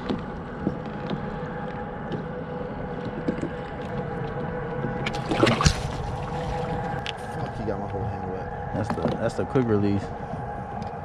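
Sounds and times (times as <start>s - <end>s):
faint steady hum: 0.0s - 11.0s
water wash: 5.0s - 7.2s.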